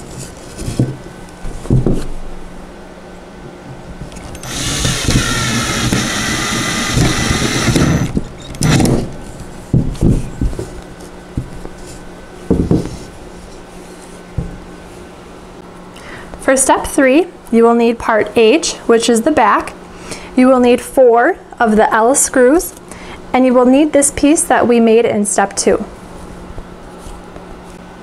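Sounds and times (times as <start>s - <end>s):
cordless drill driving screw: 4.2s - 9.0s.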